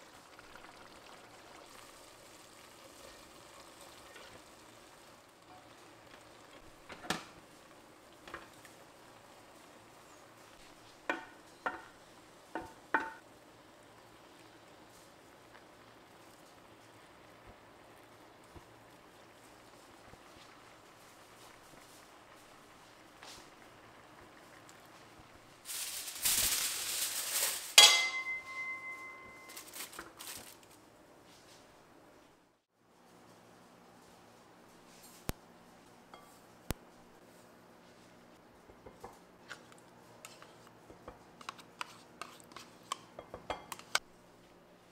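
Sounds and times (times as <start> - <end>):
aluminium foil crinkling: 25.6 - 28.0, 29.0 - 30.8
utensils clinking on cooking pot: 27.4 - 30.1, 42.2 - 44.0
pot lid clanking: 27.8 - 29.5.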